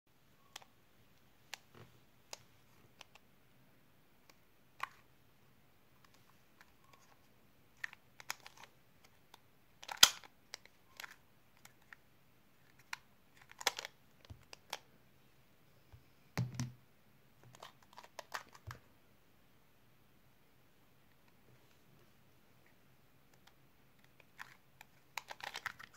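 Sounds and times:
puzzle cube clicking: 7.8 - 12.0, 12.7 - 14.8, 23.3 - 25.9.

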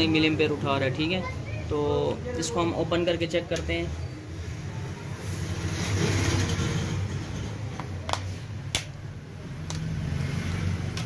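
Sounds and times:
plastic clicks and snaps: 7.8 - 9.0, 9.6 - 9.9.

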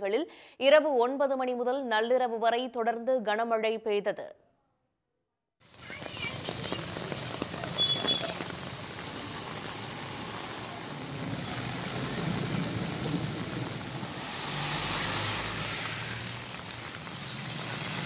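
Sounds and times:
heavy rain: 5.6 - 18.0
floodwater running: 5.8 - 18.0
vehicles driving through water: 5.8 - 18.0.

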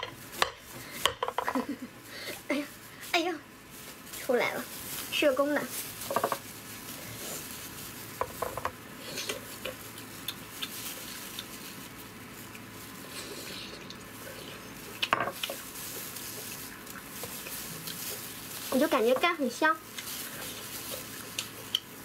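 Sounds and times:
plastic gloves rustling: 0.0 - 22.0
person chewing: 9.0 - 18.4, 19.9 - 22.0.

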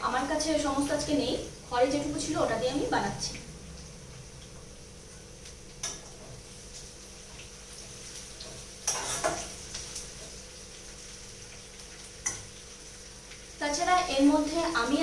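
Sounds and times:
onions sizzling in hot oil: 0.0 - 15.0
spatula scraping and knocking pot: 8.4 - 9.5.

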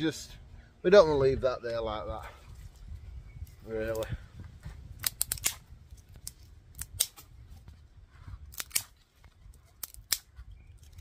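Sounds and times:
dry twigs snapping: 4.9 - 7.3, 8.5 - 11.0.

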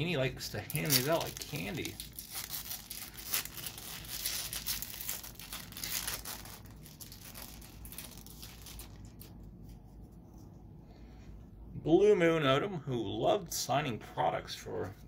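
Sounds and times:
foil wrapper tearing and crinkling: 0.6 - 9.4.

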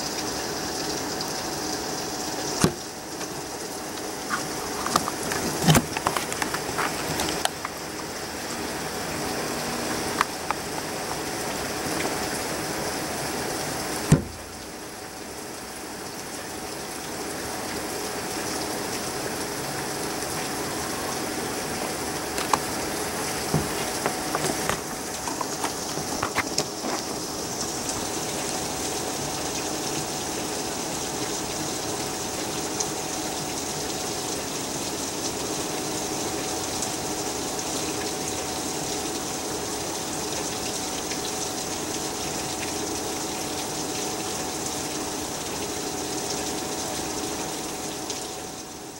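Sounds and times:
heavy rain: 0.0 - 48.9
drips and taps: 10.1 - 11.3, 23.4 - 28.1.

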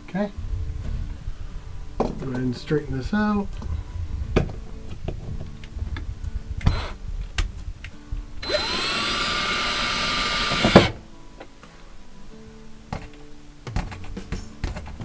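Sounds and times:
cordless drill driving screw: 6.7 - 7.0, 8.4 - 11.0
handling clicks and taps: 12.9 - 15.0.

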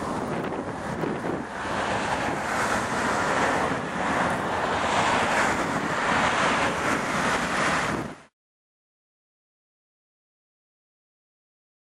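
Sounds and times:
distant jet engines rushing: 0.0 - 8.3.

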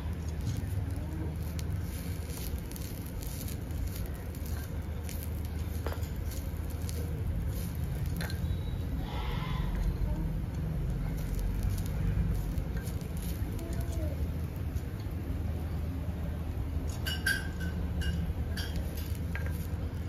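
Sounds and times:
ladle stirring greens: 0.0 - 15.4, 16.8 - 20.0.

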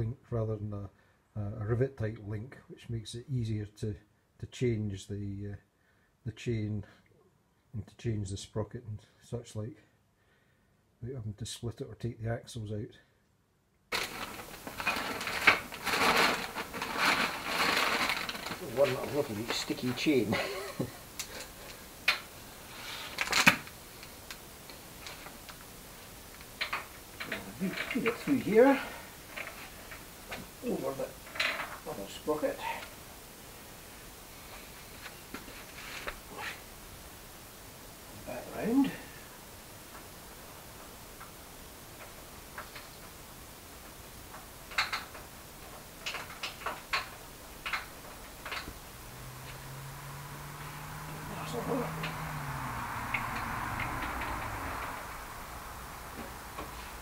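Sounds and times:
roller chain links clinking: 14.0 - 20.8, 26.6 - 29.7, 30.8 - 32.0.

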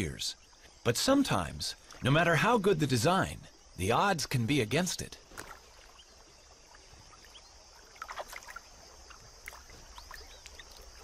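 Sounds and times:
small water splashes: 0.0 - 2.5, 4.7 - 11.0
faint water sloshing and dripping: 0.0 - 11.0.

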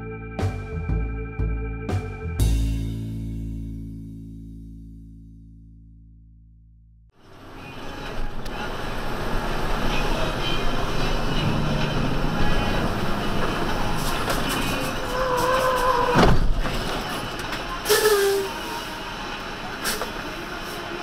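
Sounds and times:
engine and road rumble: 0.0 - 6.4, 7.1 - 21.0.

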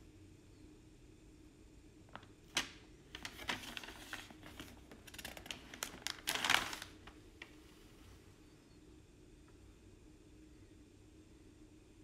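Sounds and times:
paper pages rustling: 2.1 - 7.8.

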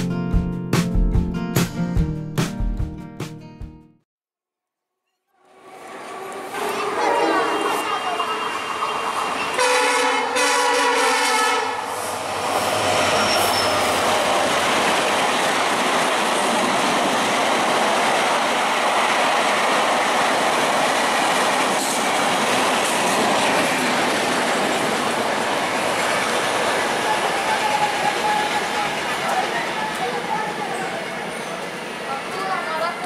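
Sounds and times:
locomotive multi-tone horn: 5.4 - 12.2
train rushing past on rails: 5.4 - 33.0.

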